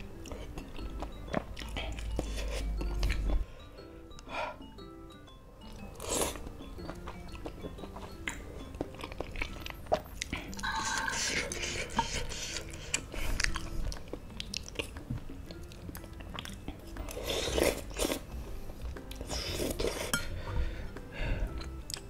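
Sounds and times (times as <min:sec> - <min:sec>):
faint background music: 0:00.0 - 0:22.0
chewing: 0:00.2 - 0:03.3, 0:05.7 - 0:18.3
slurping noodles: 0:17.1 - 0:18.3.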